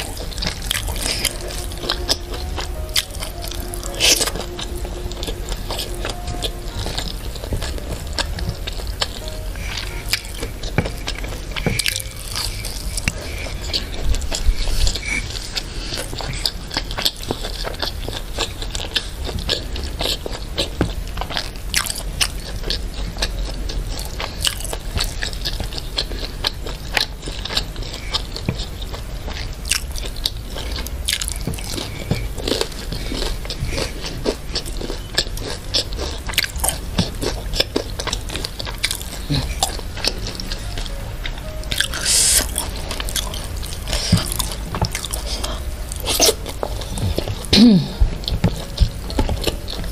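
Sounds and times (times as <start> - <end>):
crunchy chewing: 0.0 - 49.9
wet mouth sounds: 29.6 - 49.9.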